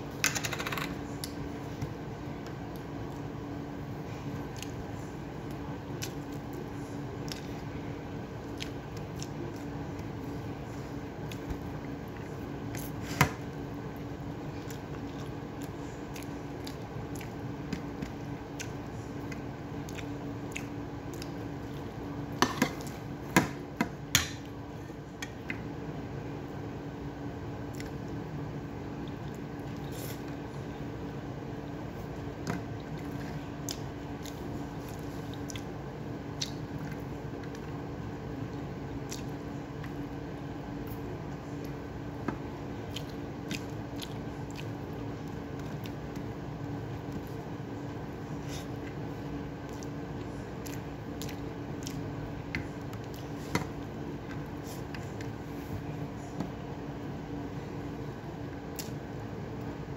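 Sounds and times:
steady low hum: 0:00.0 - 0:59.9
chewing: 0:18.5 - 0:21.9, 0:32.8 - 0:35.7, 0:39.0 - 0:40.0, 0:42.8 - 0:46.2, 0:49.6 - 0:55.6
wet squishing of food by hand: 0:40.8 - 0:56.7, 0:57.8 - 0:59.9.

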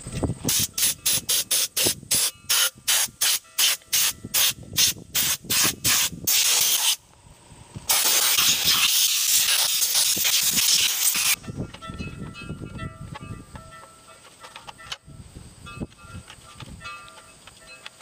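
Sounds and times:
air blast gun hissing: 0:00.5 - 0:07.0, 0:07.8 - 0:11.4.

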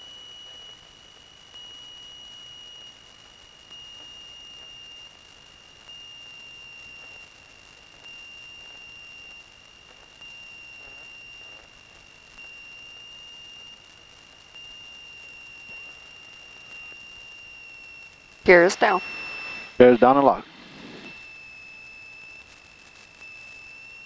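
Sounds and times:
faint hiss: 0:00.0 - 0:24.0
high-pitched electronic tone: 0:00.0 - 0:24.0.

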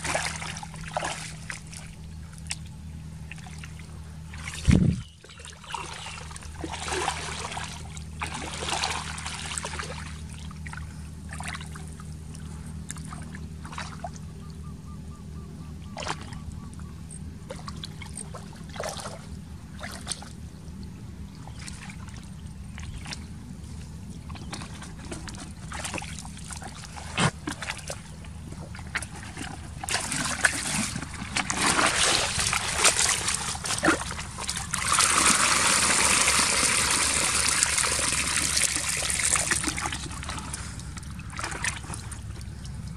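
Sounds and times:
water splashing and trickling: 0:00.0 - 0:14.4, 0:17.4 - 0:20.4, 0:21.2 - 0:42.9
low steady hum: 0:00.0 - 0:42.9
footsteps squelching through mud: 0:17.5 - 0:20.4, 0:21.4 - 0:36.5, 0:37.1 - 0:42.9.

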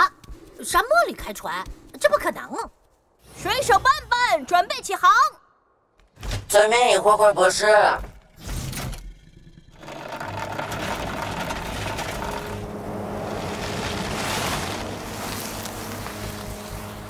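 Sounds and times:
low hum: 0:08.6 - 0:17.0.

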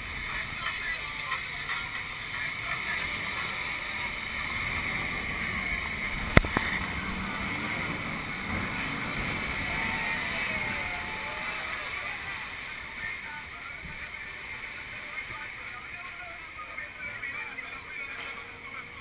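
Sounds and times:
water splashing and rushing: 0:00.0 - 0:19.0
wind buffeting microphone: 0:01.7 - 0:12.4.

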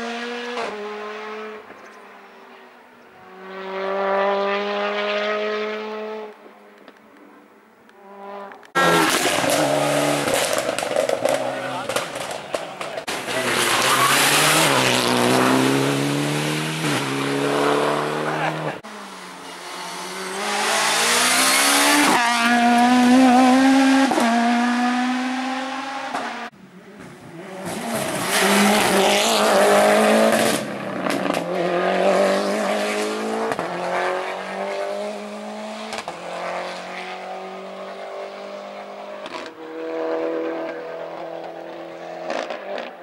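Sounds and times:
rally car engines revving: 0:00.0 - 0:06.4, 0:07.9 - 0:43.0.

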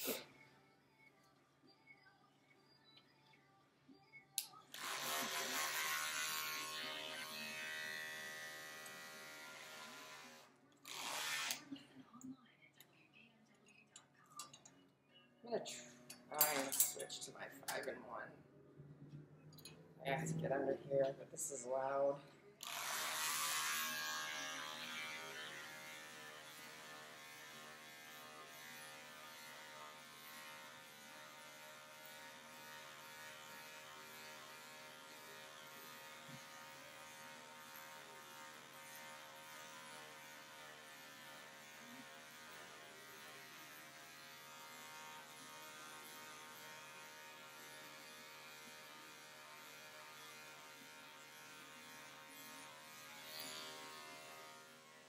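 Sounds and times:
electric pet clipper humming: 0:04.4 - 0:11.7, 0:22.6 - 0:55.0.

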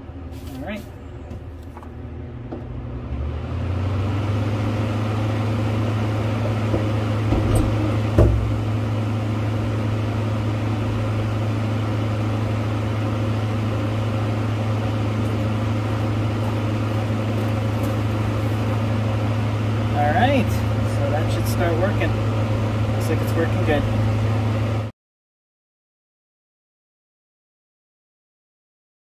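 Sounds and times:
air conditioner humming: 0:00.0 - 0:24.9
short knocks: 0:06.7 - 0:08.6.

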